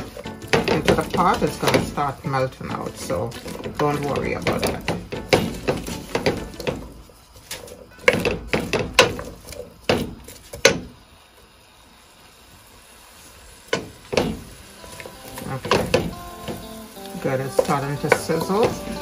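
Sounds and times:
utensil knocking against pot: 0.0 - 6.9, 8.0 - 9.3, 15.6 - 16.7, 17.5 - 19.0.

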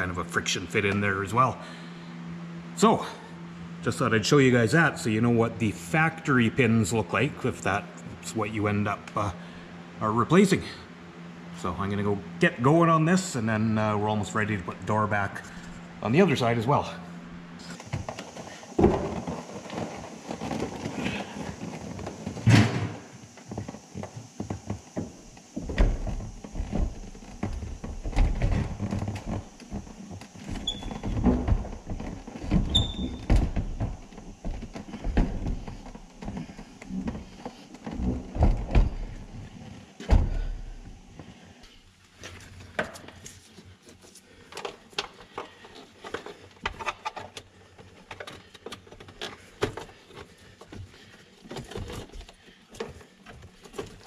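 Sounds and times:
door hinge squeaks: 30.6 - 31.1, 32.7 - 33.3
heavy door knocks and clunks: 40.0 - 41.0.

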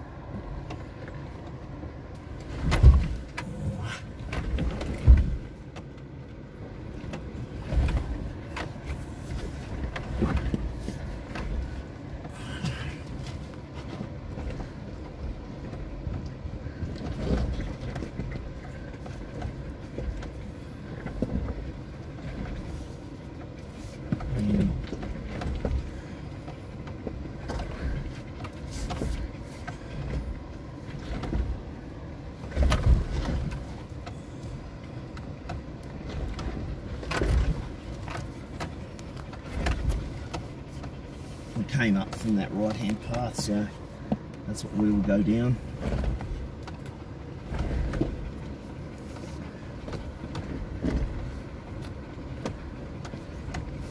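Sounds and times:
car cabin low rumble: 0.0 - 53.9.

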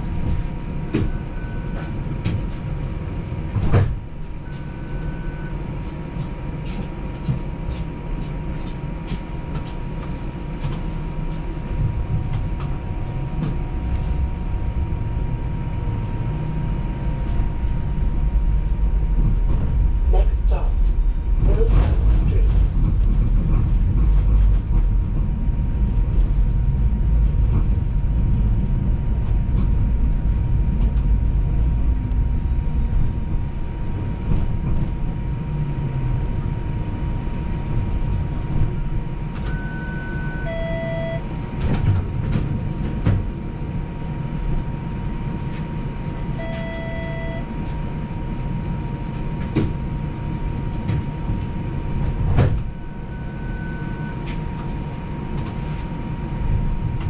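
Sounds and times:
streetcar wheels rumbling on rails: 0.0 - 40.6, 41.2 - 46.6, 47.5 - 53.3
faint constant whine: 0.0 - 57.0
short electronic beeps: 39.5 - 41.2, 46.4 - 47.5.

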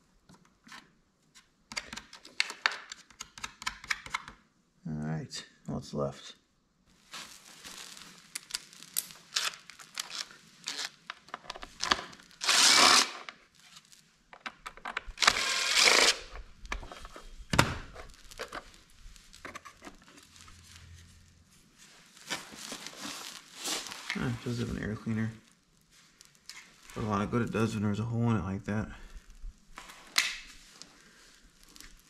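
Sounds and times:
clicks and knocks of handled screws: 14.3 - 17.1.

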